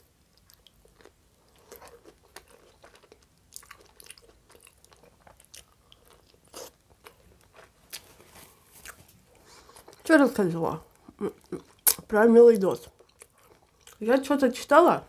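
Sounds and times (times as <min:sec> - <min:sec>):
person chewing crunchy food: 0:00.3 - 0:10.1, 0:13.0 - 0:14.0.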